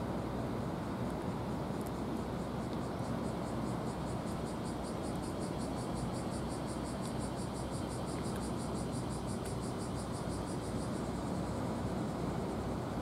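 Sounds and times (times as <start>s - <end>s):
low background noise: 0.0s - 13.0s
insect calling in pulses: 2.8s - 12.2s.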